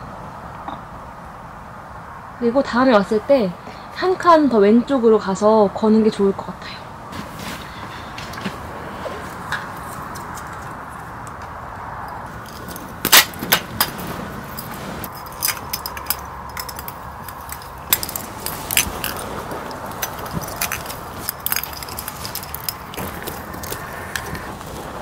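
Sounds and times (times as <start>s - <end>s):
steady background hiss: 0.0s - 25.0s
bulbs and clips clinking: 12.0s - 24.5s.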